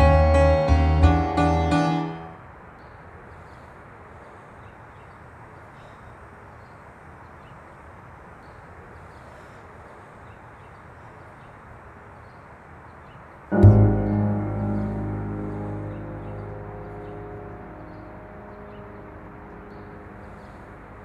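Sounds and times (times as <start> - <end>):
street rumble and hiss: 2.3 - 21.0.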